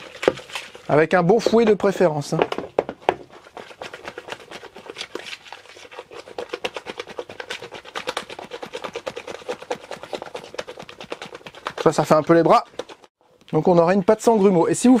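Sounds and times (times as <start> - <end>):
whisk scraping in bowl: 3.2 - 13.1.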